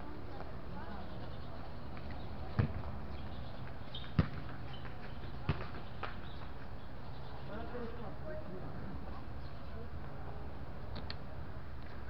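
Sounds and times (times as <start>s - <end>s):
ball thumping on hard court: 2.5s - 2.9s, 4.0s - 6.2s.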